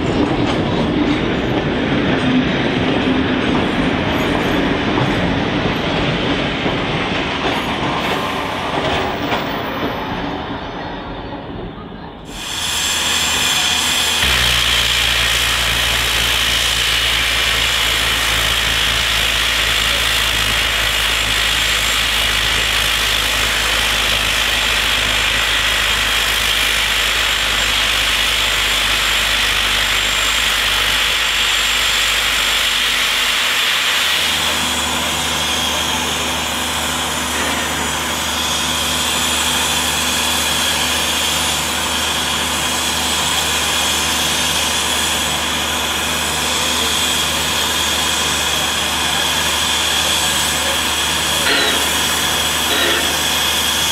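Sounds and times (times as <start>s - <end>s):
steam hissing from safety valves: 12.2s - 53.9s
deep rumble: 14.2s - 24.6s.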